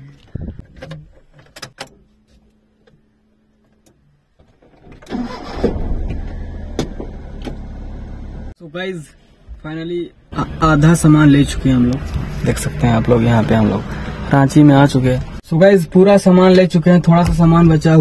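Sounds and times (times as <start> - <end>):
van engine starting and idling: 4.4 - 8.6, 10.3 - 15.4.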